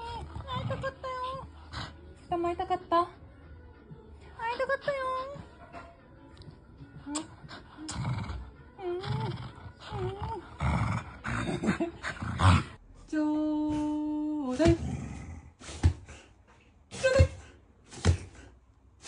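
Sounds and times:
dog growling playfully: 0:00.0 - 0:02.0, 0:07.2 - 0:12.8, 0:14.6 - 0:15.6.

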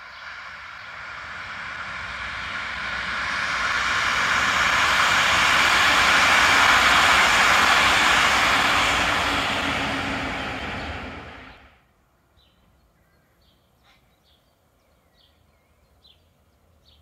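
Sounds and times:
diesel train passing: 0:00.0 - 0:11.9.

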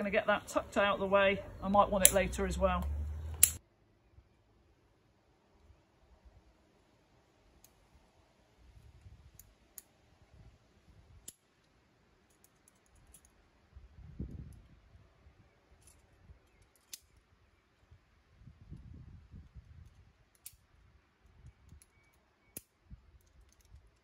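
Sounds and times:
carabiners clicking: 0:02.0 - 0:03.6.

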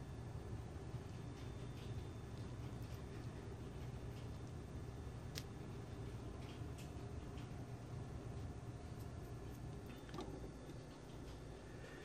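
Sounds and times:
room hum: 0:00.0 - 0:12.0.

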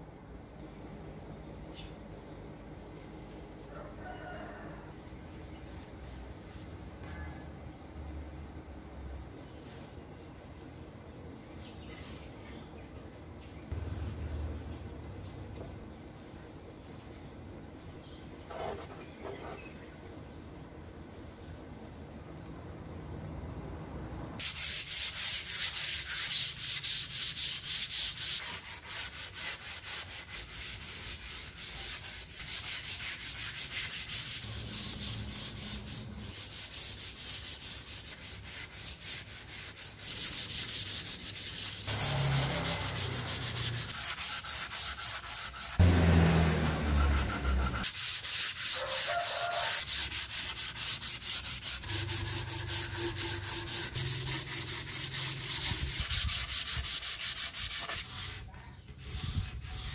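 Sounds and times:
sandpaper rubbing on wood: 0:05.0 - 0:07.2, 0:24.4 - 0:59.9.

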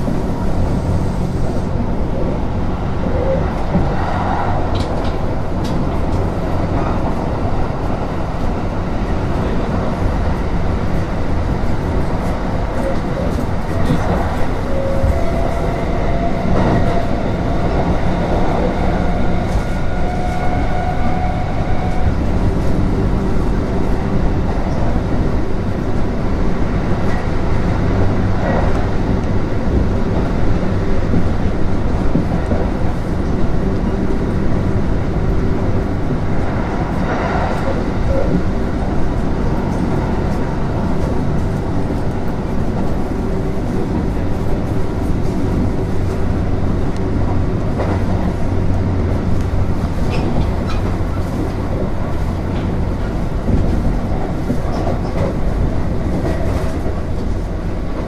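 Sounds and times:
train wheels rumbling on rails: 0:00.0 - 0:58.0
track knocks: 0:46.9 - 0:58.0.

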